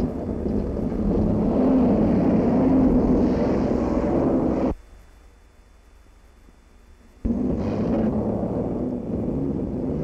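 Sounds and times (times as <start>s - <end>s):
engine rumbling under load: 0.0s - 4.8s.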